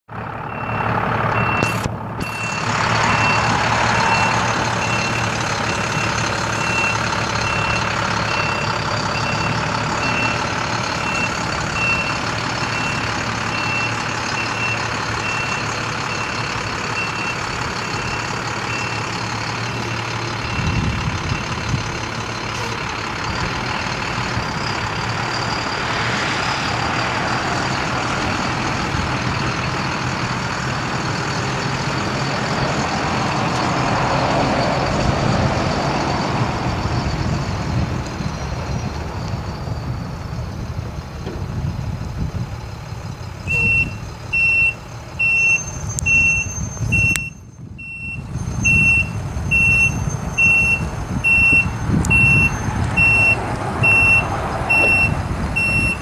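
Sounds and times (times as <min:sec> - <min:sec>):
diesel truck engine running: 0:00.1 - 0:56.0
backup alarm beeping: 0:00.5 - 0:10.4, 0:43.4 - 0:56.0.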